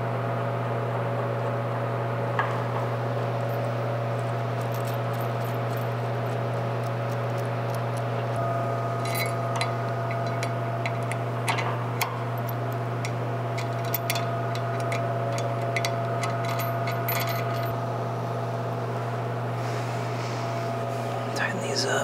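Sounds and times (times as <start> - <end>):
low shop hum: 0.0 - 22.0
metallic clicks and clinks: 9.0 - 17.8.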